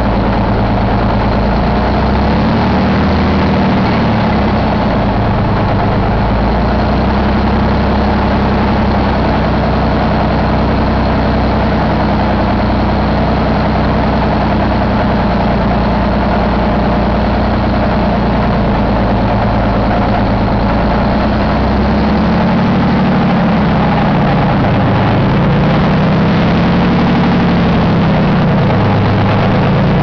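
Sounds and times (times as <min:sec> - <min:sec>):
diesel engine idling: 0:00.0 - 0:30.0.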